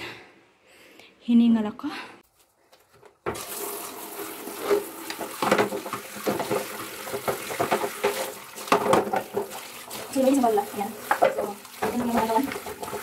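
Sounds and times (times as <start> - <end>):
water splashing from shower head: 3.4 - 13.0
plastic dishes knocking and clattering: 4.7 - 9.7, 11.0 - 13.0.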